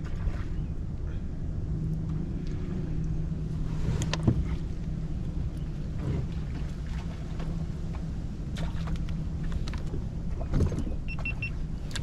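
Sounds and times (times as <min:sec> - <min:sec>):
water slapping at a kayak: 0:00.0 - 0:00.6, 0:05.9 - 0:12.0
wind rumbling on microphone: 0:00.0 - 0:12.0.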